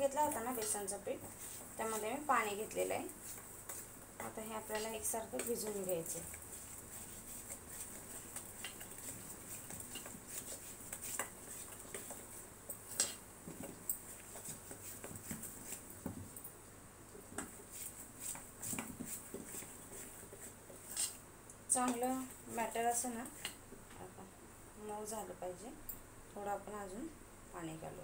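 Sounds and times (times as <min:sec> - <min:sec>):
spatula scraping steel bowl: 0:00.2 - 0:13.2.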